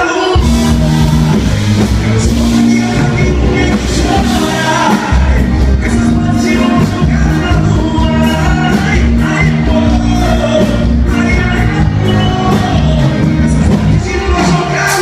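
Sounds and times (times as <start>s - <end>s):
drums: 0.0s - 15.0s
man singing into a microphone: 0.0s - 15.0s
electric bass guitar: 0.3s - 15.0s.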